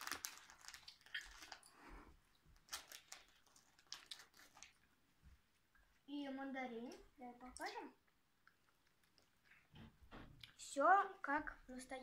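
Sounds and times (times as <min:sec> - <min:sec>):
faint clicks and rustles: 0:06.8 - 0:10.7.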